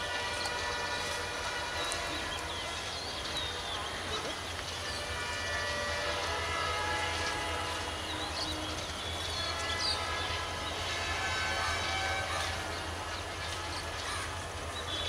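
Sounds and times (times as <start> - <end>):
locomotive rumbling: 0.0 - 15.0.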